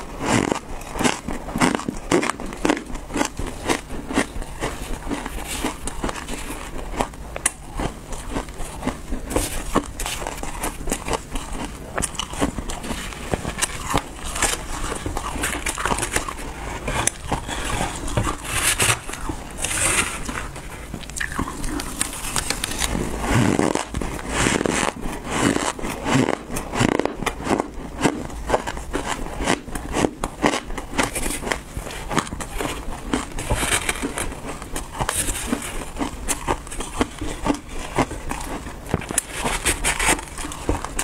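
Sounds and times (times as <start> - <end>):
crunching and chewing ice: 0.0 - 41.0
metal spoon scraping ice: 9.4 - 20.4.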